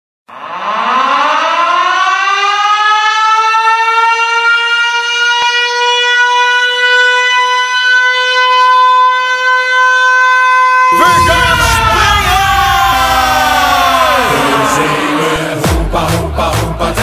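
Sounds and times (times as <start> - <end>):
siren-like goal horn: 0.3 - 15.8.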